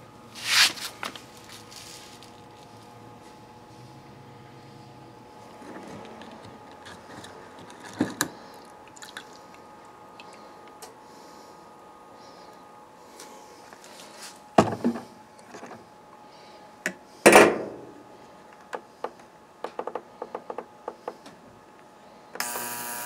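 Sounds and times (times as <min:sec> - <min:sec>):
ultrasonic cleaner buzzing: 0:22.4 - 0:23.0.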